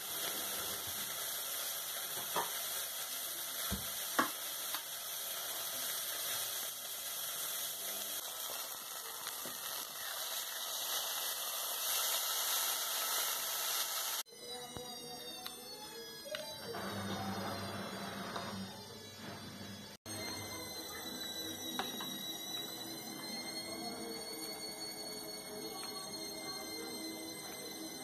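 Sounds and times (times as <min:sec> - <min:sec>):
steak sizzling in a pan: 0:00.0 - 0:14.3.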